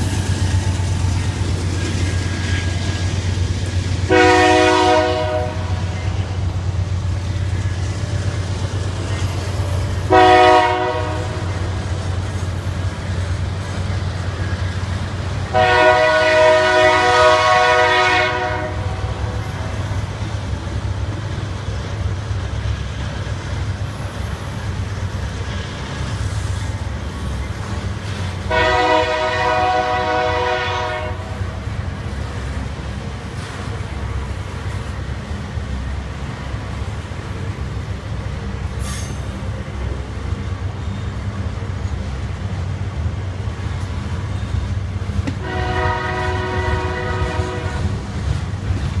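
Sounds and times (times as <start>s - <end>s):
locomotive horn blasts: 4.1s - 6.2s, 10.0s - 11.6s, 15.5s - 19.4s, 28.4s - 31.6s, 45.3s - 48.0s.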